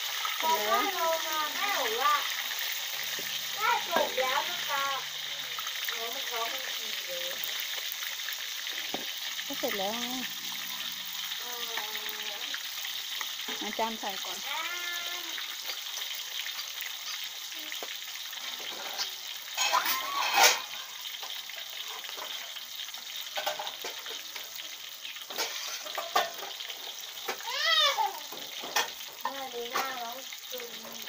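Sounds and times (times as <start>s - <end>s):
fish deep-frying in oil: 0.0s - 31.0s
child calling out: 3.5s - 5.6s, 11.4s - 12.6s, 14.4s - 15.4s, 27.4s - 28.4s.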